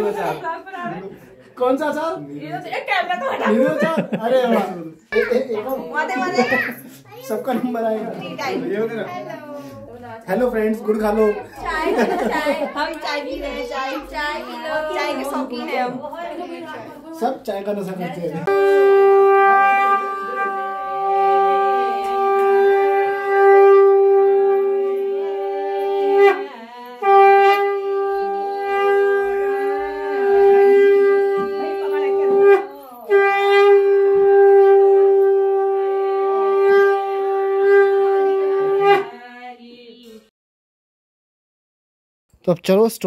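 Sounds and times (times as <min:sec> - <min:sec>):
conch shell blown: 0:18.4 - 0:39.1.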